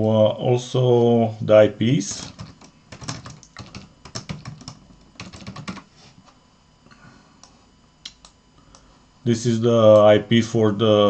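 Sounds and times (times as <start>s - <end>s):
typing on computer keyboard: 2.2s - 5.8s.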